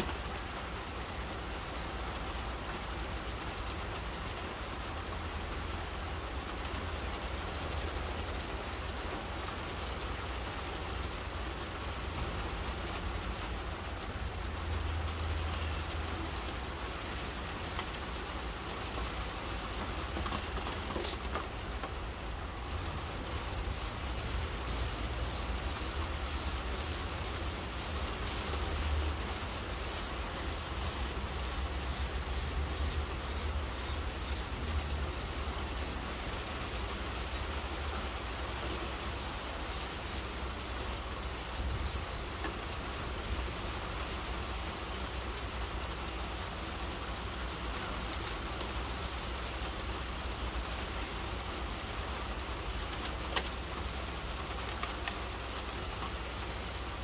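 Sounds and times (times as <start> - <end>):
rain falling: 0.0 - 57.0
spray-paint can hissing: 23.4 - 37.6, 38.6 - 42.5, 45.8 - 46.8, 47.6 - 49.2.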